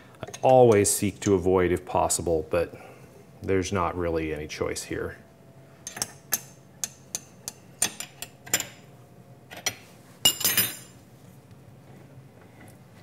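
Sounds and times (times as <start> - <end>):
wrench clattering on metal table: 9.5 - 11.0.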